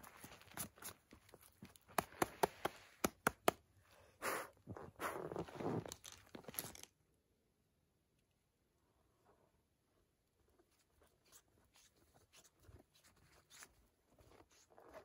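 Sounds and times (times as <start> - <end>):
breathy puffs of blowing: 3.9 - 5.3.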